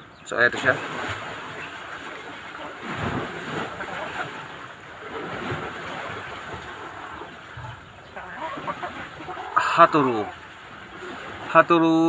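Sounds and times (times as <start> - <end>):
wind on microphone: 2.8 - 9.3.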